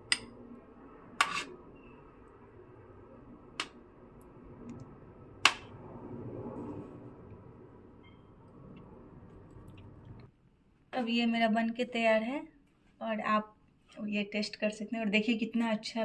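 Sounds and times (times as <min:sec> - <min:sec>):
spoon scraping in pot: 0:01.2 - 0:01.6.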